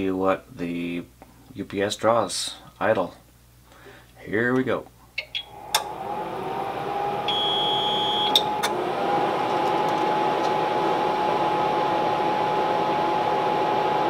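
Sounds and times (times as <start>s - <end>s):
cooling fan whine: 3.6s - 14.0s
high beep: 7.3s - 8.4s.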